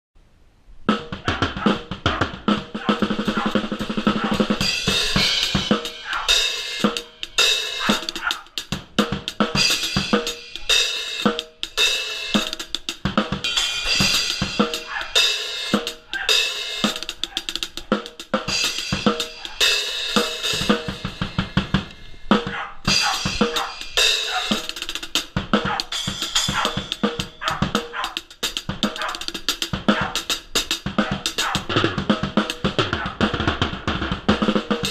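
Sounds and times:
drum kit groove: 0:00.9 - 0:34.9.

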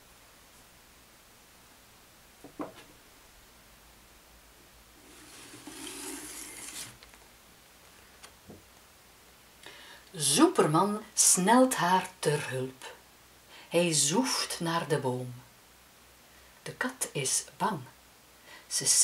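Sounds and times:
light wooden knock: 0:02.4 - 0:02.9
paper rubbing against wood: 0:05.0 - 0:07.0.

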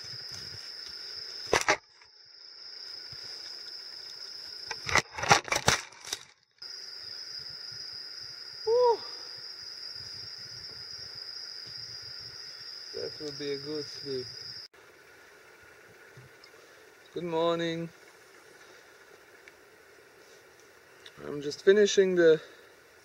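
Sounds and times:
insect chorus: 0:00.0 - 0:23.0.

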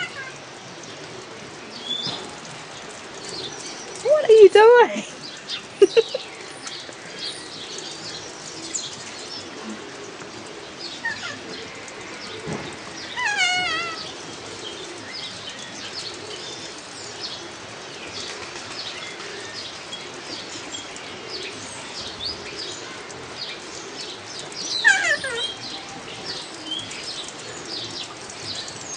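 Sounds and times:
parrot screeching: 0:13.2 - 0:14.1, 0:24.8 - 0:25.6.

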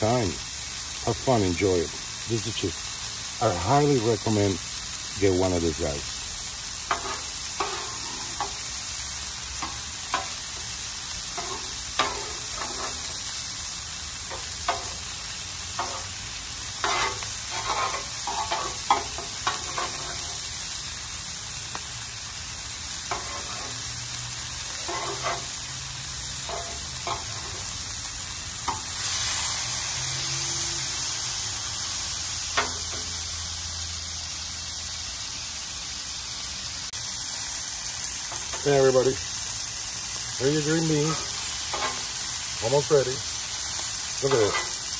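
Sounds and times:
food sizzling on a griddle: 0:00.0 - 0:44.9
metal tongs clacking and scraping: 0:11.3 - 0:13.1, 0:24.8 - 0:25.6, 0:26.4 - 0:27.7, 0:41.0 - 0:42.1, 0:44.3 - 0:44.8.

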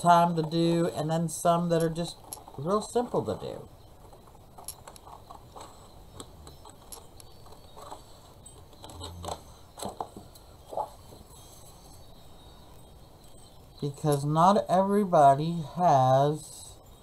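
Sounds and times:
paper rustling: 0:10.7 - 0:11.0.

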